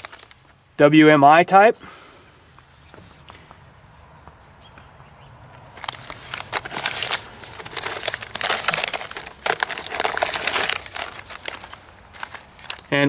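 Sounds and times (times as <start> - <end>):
plastic bags crinkling: 0.0 - 0.5, 5.7 - 13.0.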